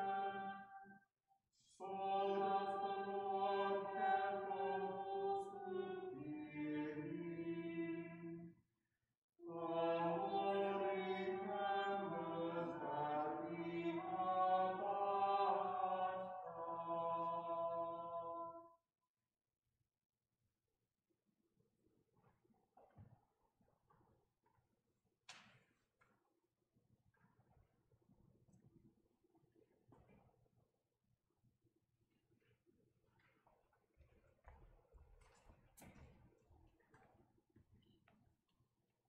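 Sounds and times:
choir chanting in harmony: 0.0 - 0.9, 1.8 - 8.5, 9.4 - 18.7.

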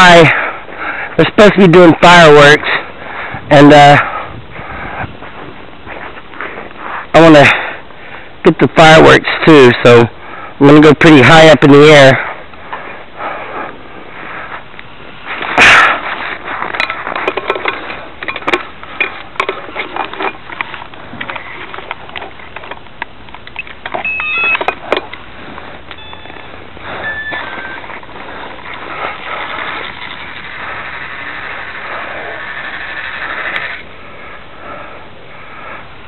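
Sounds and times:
handling clicks and knocks: 15.4 - 30.6
short electronic beeps: 23.6 - 24.7, 25.9 - 27.8.

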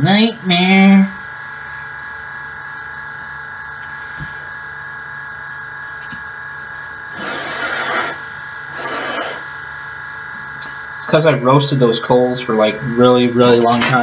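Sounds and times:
steady electrical hum: 0.0 - 14.0
breath blown out: 7.1 - 9.5.

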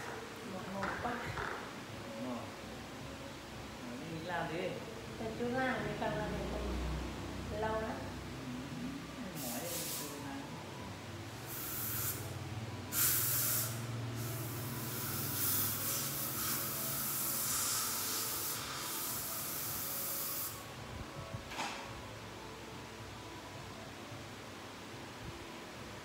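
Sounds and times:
dental equipment hissing: 11.4 - 20.6.

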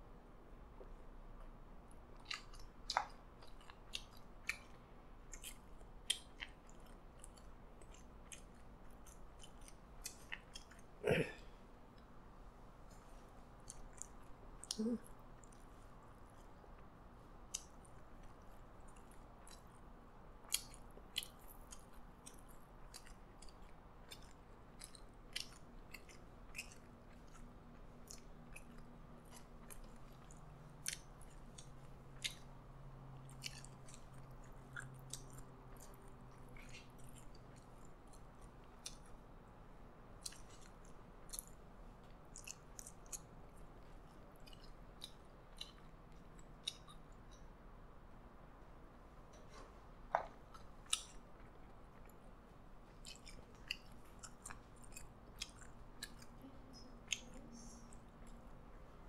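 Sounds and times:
man chewing food: 0.7 - 59.0
throat sound: 11.0 - 11.5.

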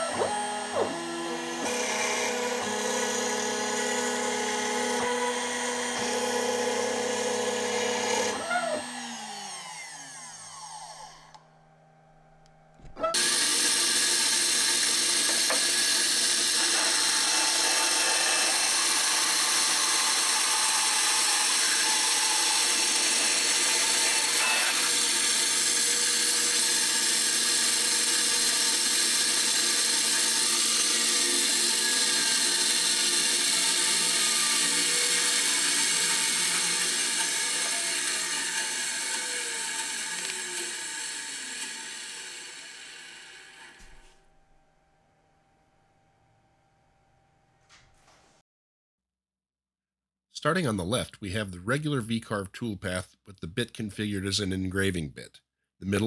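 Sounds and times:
bandsaw running: 0.0 - 11.4, 13.0 - 43.9
router spindle whine: 0.0 - 11.5, 13.0 - 43.9.

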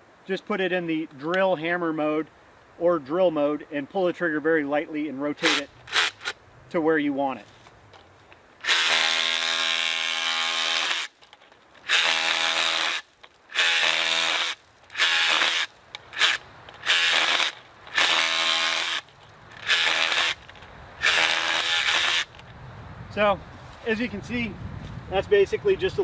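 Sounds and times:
rotary hammer chipping concrete: 5.4 - 6.3, 8.7 - 22.4.

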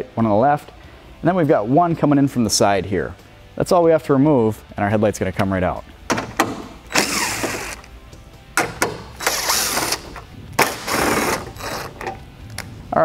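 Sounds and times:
impact driver whirring: 6.9 - 7.9, 8.6 - 12.1.

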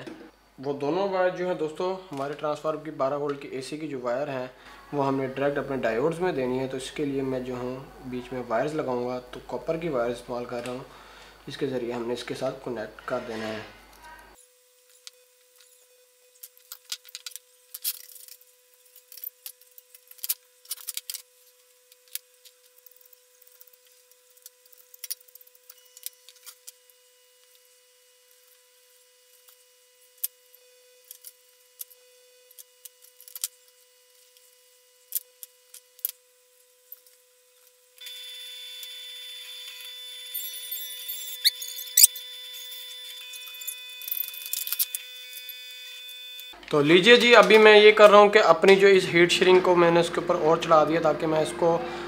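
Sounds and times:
utility knife cutting wire insulation: 38.0 - 46.6.

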